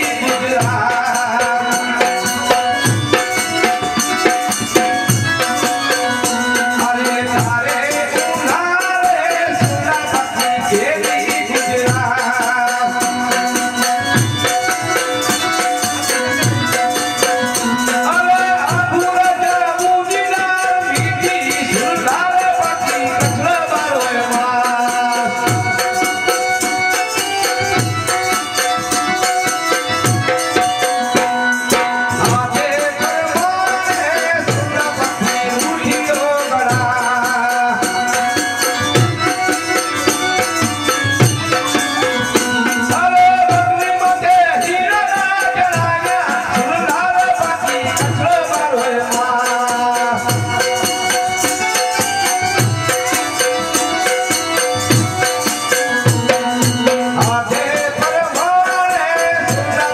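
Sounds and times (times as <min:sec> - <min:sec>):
harmonium: 0:00.0 - 0:59.9
man singing: 0:00.0 - 0:59.9
rattling hand percussion: 0:00.0 - 0:59.9
hand drum beating: 0:50.1 - 0:58.5.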